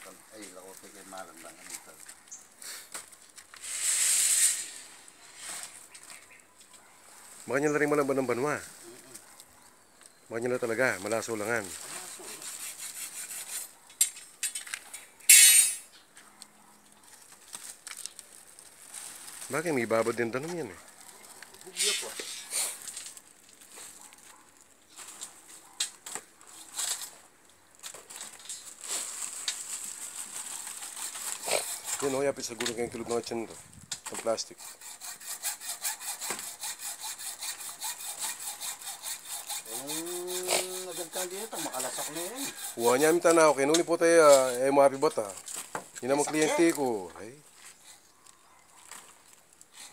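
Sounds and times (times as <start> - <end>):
rustling scraping burst: 3.5 - 5.9, 28.1 - 43.6
fast rasping strokes: 11.9 - 13.8, 30.2 - 32.6, 34.2 - 43.5.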